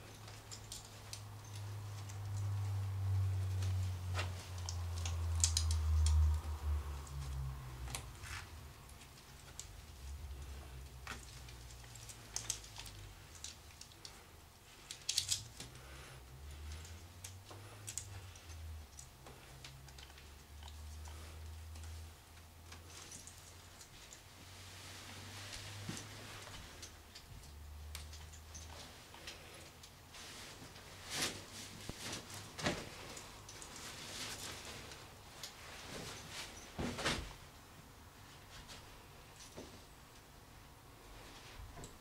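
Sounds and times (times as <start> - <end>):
clothing rustling: 0.0 - 42.0
low steady hum: 0.0 - 42.0.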